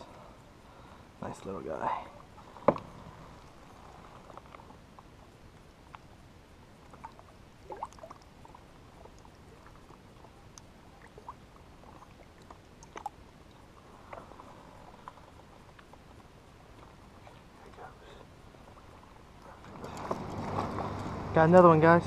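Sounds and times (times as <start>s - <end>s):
water splashes and drips: 5.8s - 21.5s.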